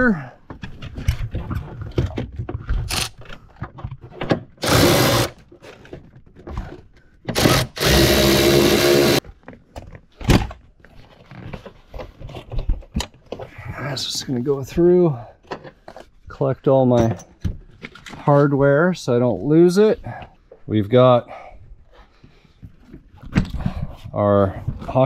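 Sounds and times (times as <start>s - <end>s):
cordless electric ratchet spinning: 4.6s - 5.4s, 7.4s - 9.2s.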